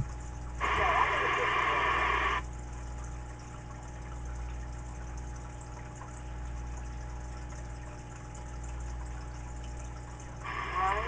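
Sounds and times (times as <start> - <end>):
low steady hum: 0.0 - 11.0
radio static hiss: 0.6 - 2.4, 10.4 - 11.0.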